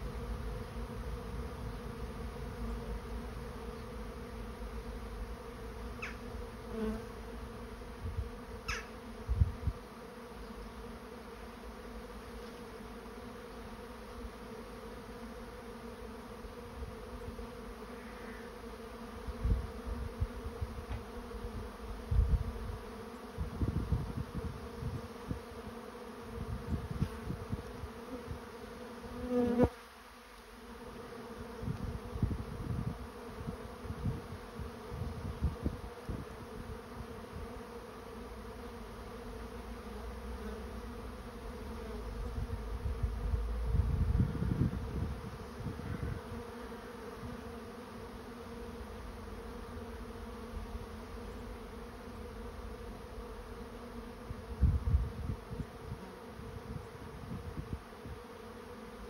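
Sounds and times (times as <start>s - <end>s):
bee buzz: 0.0s - 59.0s
bees humming: 0.0s - 59.0s
wind rumble on microphone: 9.2s - 9.8s, 21.6s - 22.8s, 23.4s - 25.4s, 26.4s - 28.4s, 31.6s - 37.5s, 42.1s - 46.4s, 54.2s - 58.2s.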